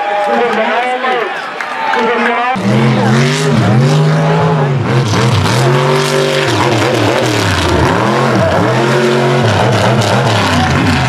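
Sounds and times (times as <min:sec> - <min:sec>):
truck engine revving: 0:02.6 - 0:11.0.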